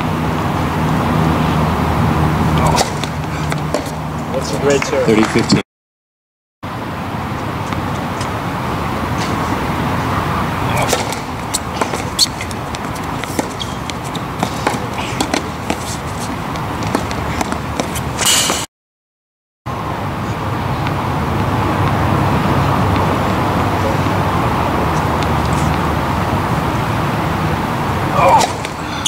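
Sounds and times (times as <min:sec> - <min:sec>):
outdoor background rumble: 0:00.0 - 0:05.6, 0:06.7 - 0:18.7, 0:19.7 - 0:29.0.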